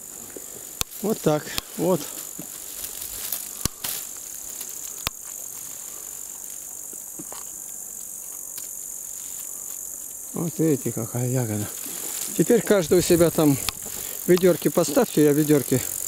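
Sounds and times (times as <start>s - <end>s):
insects chirring: 0.0s - 16.0s
sharp clicks: 13.2s - 14.5s.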